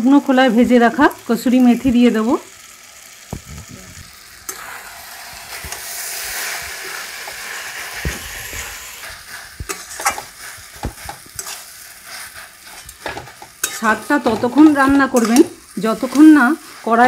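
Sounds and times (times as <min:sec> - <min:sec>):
vegetables sizzling in a wok: 0:00.0 - 0:17.0
metal spatula scraping a pan: 0:04.5 - 0:17.0.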